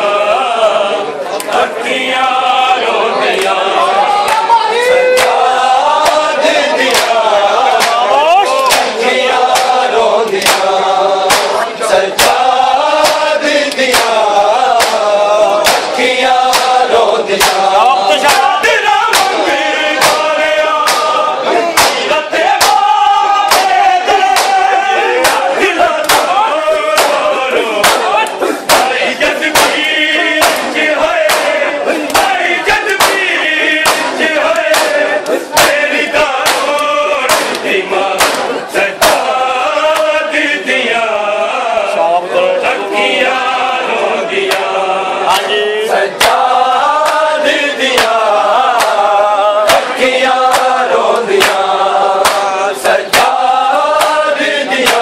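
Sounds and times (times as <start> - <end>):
men chanting in unison: 0.0 - 55.0
hand slaps on chest: 11.3 - 11.5, 20.0 - 21.1, 24.4 - 24.6, 52.2 - 52.5.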